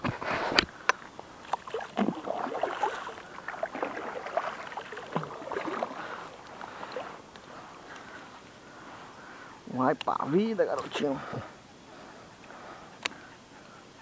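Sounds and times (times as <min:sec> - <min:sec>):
water splashing around a kayak: 0:00.2 - 0:07.6.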